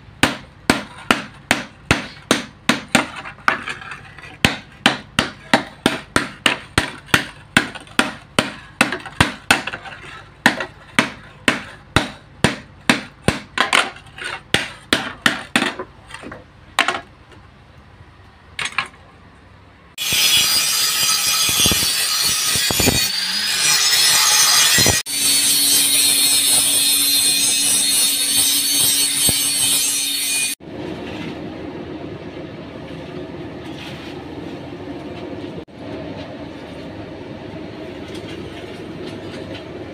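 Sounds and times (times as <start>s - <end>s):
angle grinder grinding: 20.0s - 30.6s
hammer striking steel on anvil: 20.0s - 30.6s.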